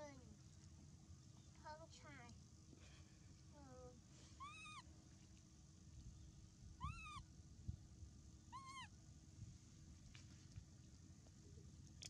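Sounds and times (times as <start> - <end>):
baby monkey coo calls: 4.4 - 4.8, 6.8 - 7.2, 8.5 - 8.9.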